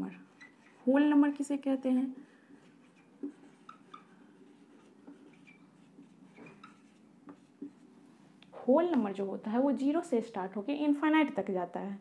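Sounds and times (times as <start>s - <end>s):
marker pen on whiteboard: 0.0s - 9.2s.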